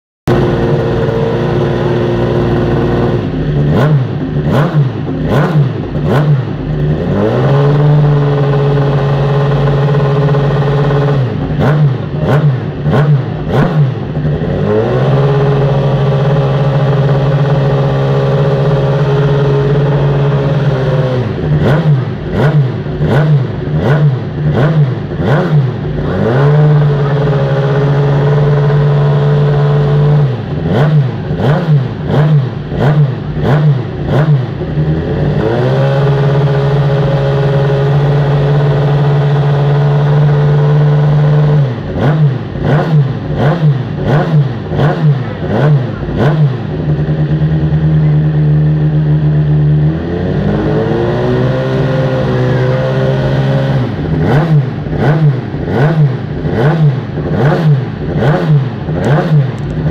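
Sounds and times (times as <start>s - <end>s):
motorcycle engine revving: 0.3s - 59.9s.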